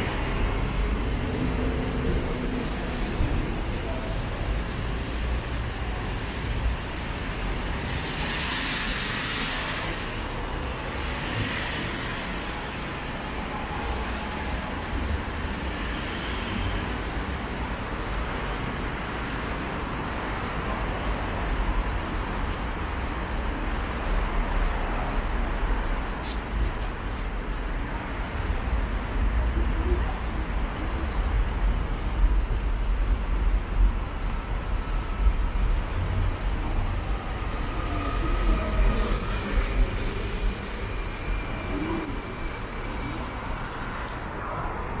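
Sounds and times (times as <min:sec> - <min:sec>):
traffic passing: 0:00.0 - 0:45.0
loud vehicle hiss: 0:04.2 - 0:17.4.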